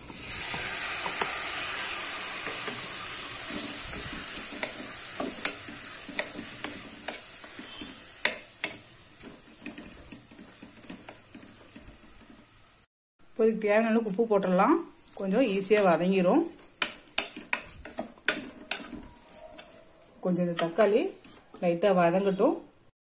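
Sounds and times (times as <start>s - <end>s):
tomatoes sizzling in hot oil: 0.0s - 21.3s
spatula scraping a pot: 2.4s - 12.5s, 15.0s - 21.7s.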